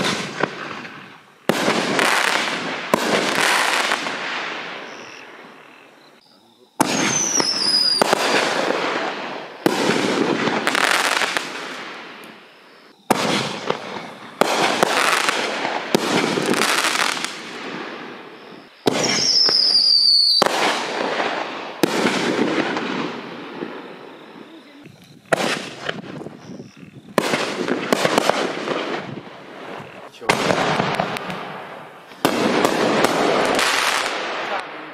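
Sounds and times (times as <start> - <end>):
firework shells booming: 0.0 - 6.0, 6.7 - 24.5, 25.1 - 34.9
falling whistle: 19.0 - 20.4.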